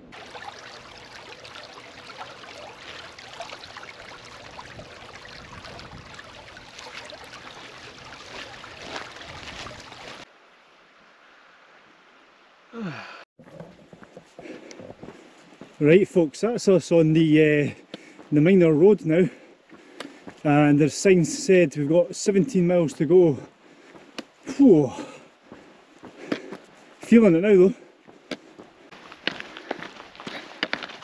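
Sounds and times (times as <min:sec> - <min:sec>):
stream trickling and gurgling: 0:00.0 - 0:14.0, 0:15.0 - 0:31.0.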